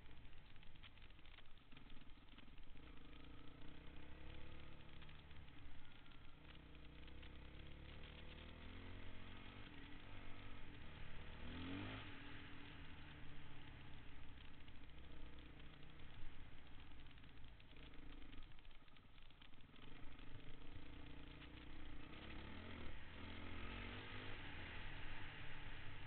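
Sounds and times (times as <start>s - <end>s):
dirt bike engine revving: 6.4s - 18.4s, 19.6s - 26.0s.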